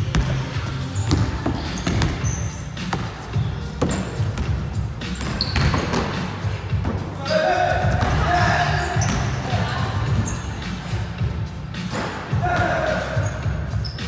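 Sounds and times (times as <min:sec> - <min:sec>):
sneaker squeaks: 0:00.2 - 0:06.3, 0:07.9 - 0:11.0, 0:11.8 - 0:12.4, 0:13.1 - 0:14.0
basketball bouncing on wooden floor: 0:01.0 - 0:03.1, 0:03.8 - 0:04.6, 0:05.2 - 0:06.2.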